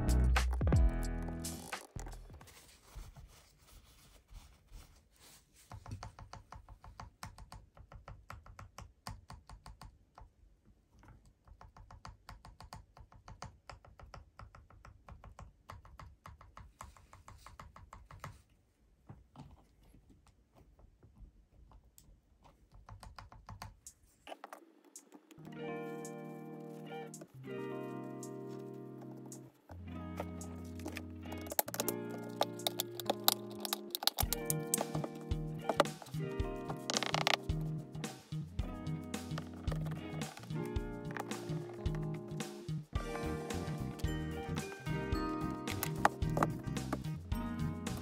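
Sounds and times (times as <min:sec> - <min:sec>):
plastic keyboard parts clicking: 0:30.2 - 0:37.5.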